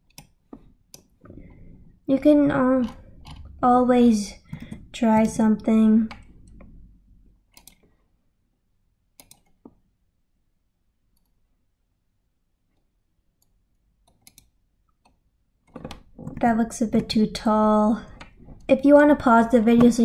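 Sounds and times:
computer mouse clicks: 0.0s - 1.1s, 2.8s - 3.6s, 7.5s - 8.0s, 9.2s - 9.8s, 11.1s - 11.4s, 12.7s - 16.4s.

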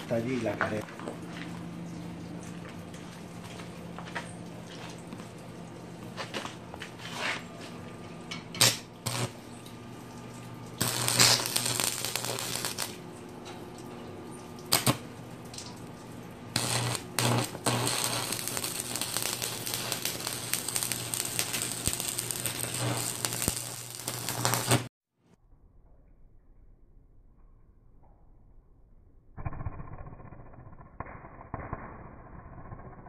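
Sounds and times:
steady low hum: 0.0s - 24.9s
welding arc crackling: 8.4s - 9.5s, 10.1s - 13.4s, 14.4s - 24.9s, 29.4s - 33.0s.

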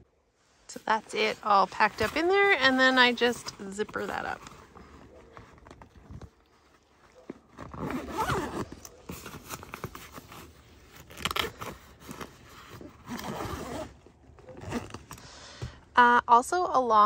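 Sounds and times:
fabric handling: 0.3s - 15.2s
zipper rasping closed: 0.8s - 15.2s.

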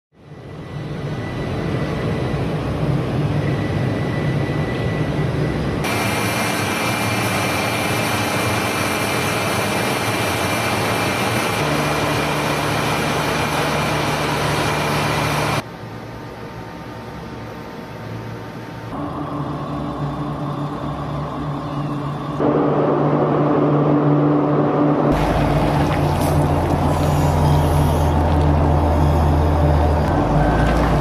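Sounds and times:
high whine: 0.2s - 31.0s
kiln fans humming: 5.6s - 31.0s.

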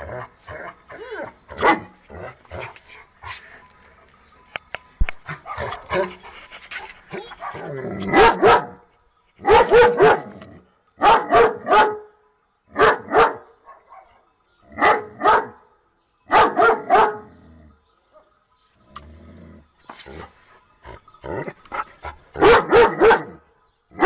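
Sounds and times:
dog barking: 1.6s - 1.9s, 5.4s - 6.2s, 7.2s - 8.8s, 9.4s - 10.4s, 11.0s - 12.1s, 12.8s - 14.2s, 14.8s - 15.6s, 16.3s - 17.3s, 22.4s - 23.4s
rustling: 2.5s - 7.7s.

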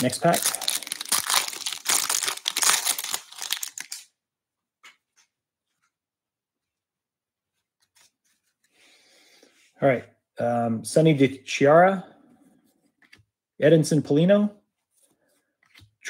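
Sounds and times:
foil wrapper tearing and crinkling: 0.0s - 4.1s.

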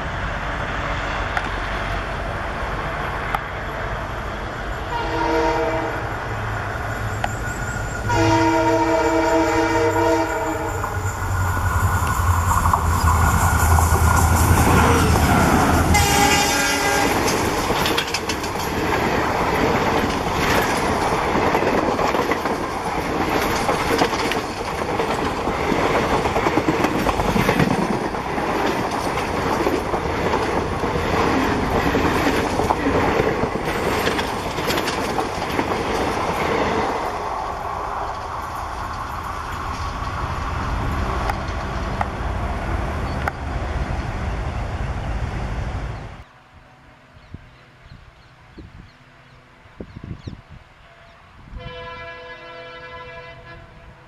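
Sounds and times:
diesel locomotive engine drone: 0.0s - 54.0s
train air horn: 4.8s - 6.3s, 8.0s - 11.1s, 15.8s - 17.4s, 50.8s - 54.0s
train wheels clacking on rails: 6.0s - 37.4s.

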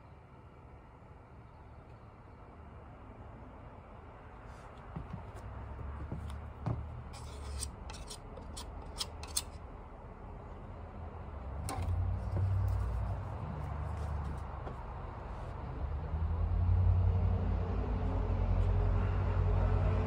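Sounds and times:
small objects clicking and scraping: 7.2s - 9.6s.

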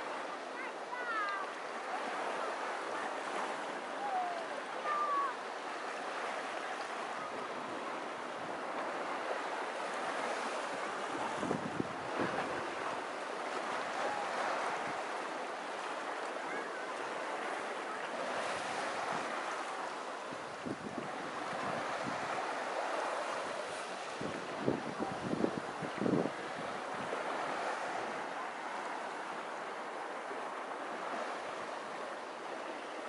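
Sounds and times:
waves washing onto beach: 0.0s - 33.0s.

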